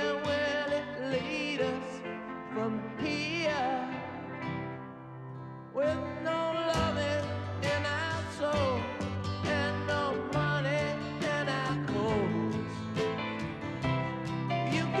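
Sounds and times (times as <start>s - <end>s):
slow song instrumental backing: 0.0s - 15.0s
bass line: 6.8s - 15.0s.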